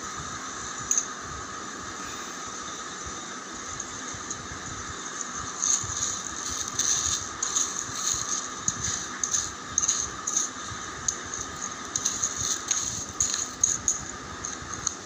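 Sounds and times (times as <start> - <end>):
steady hiss: 0.0 - 15.0
foil bag of rice crackling: 5.5 - 14.0.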